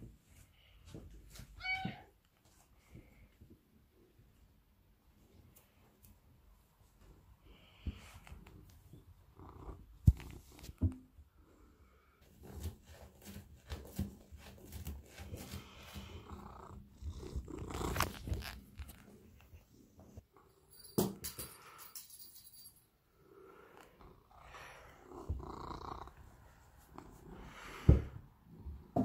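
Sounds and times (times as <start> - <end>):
cat purring: 8.9 - 10.6, 15.6 - 20.2, 23.6 - 28.9.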